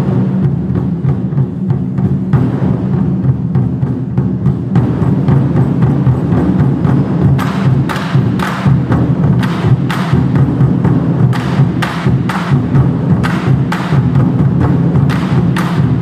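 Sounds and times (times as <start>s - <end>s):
large drums booming: 0.0s - 16.0s
wooden drumstick clacks: 7.4s - 8.7s.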